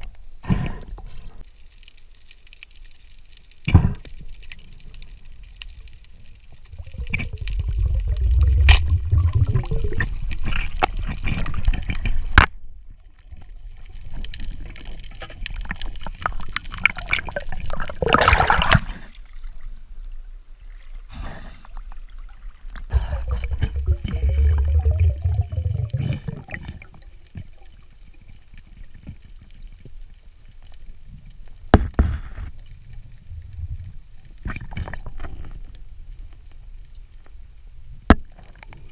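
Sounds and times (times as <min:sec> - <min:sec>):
water sloshing and gurgling: 0:04.1 - 0:30.1, 0:32.1 - 0:35.7.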